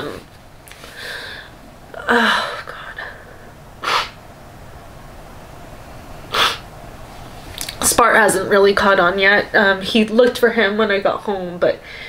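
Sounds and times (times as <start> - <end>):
woman sniffing: 3.8 - 4.2, 6.3 - 6.6.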